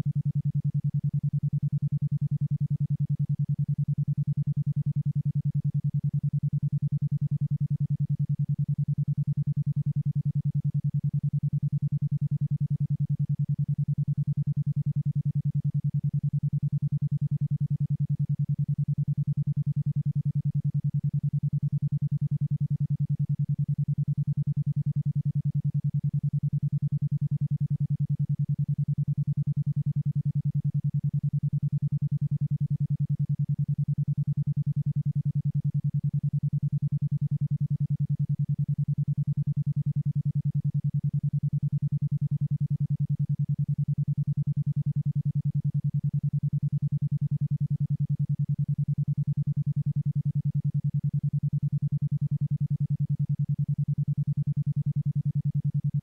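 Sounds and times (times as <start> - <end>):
pulsing low tone: 0.0 - 56.0.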